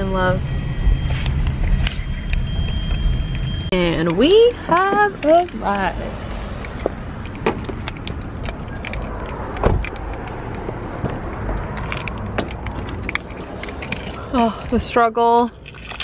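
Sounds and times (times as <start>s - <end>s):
low steady rumble: 0.0s - 6.1s
car door opening clicks: 6.8s - 14.1s
keys jingling: 11.6s - 14.7s, 15.6s - 16.0s.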